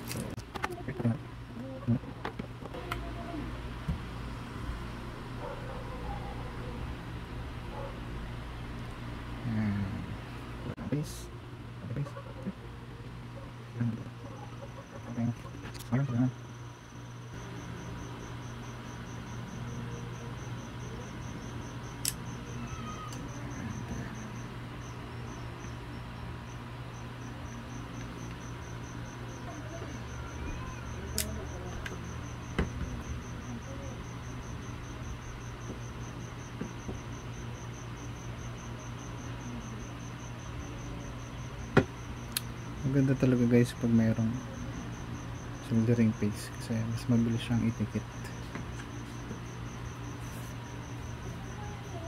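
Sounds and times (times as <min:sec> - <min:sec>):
steady low hum: 0:00.0 - 0:52.0
cricket chirping: 0:13.8 - 0:52.0.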